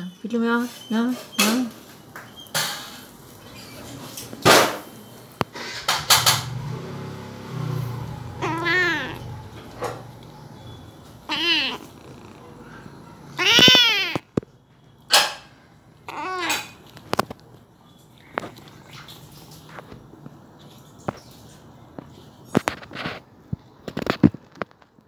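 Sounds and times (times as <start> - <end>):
kitten meowing: 8.3 - 9.5, 11.2 - 12.4, 13.4 - 14.2, 16.1 - 16.7.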